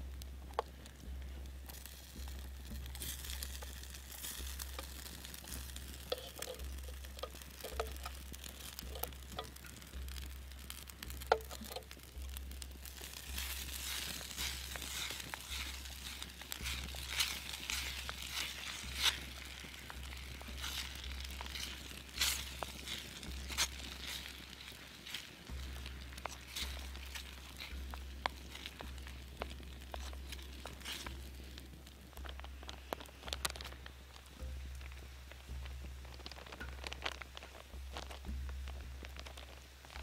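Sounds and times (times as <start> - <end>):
sharp pops and crackles: 0.0 - 40.0
food sizzling in frying pan: 1.0 - 40.0
wooden spoon stirring: 1.7 - 34.0.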